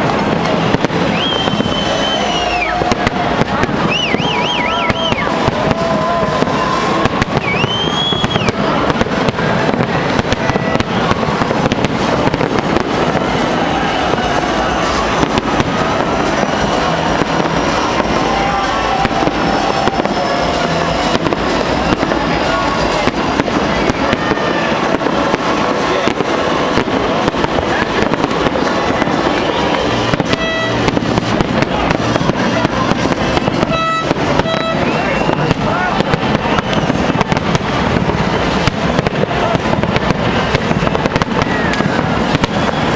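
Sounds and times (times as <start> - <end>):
firework whistle: 0.0 - 42.9
fireworks bangs and crackles: 0.0 - 42.9.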